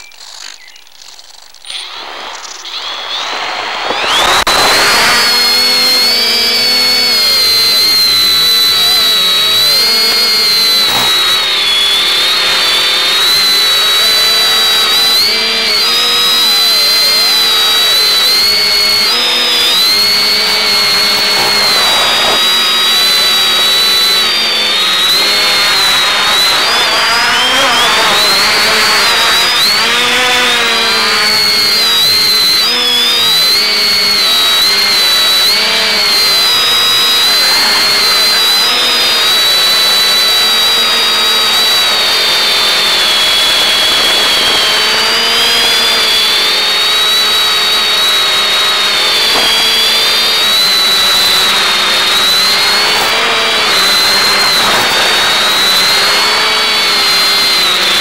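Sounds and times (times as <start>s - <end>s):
quadcopter motors whining: 0.0s - 58.0s
steady video downlink hiss: 1.5s - 5.1s.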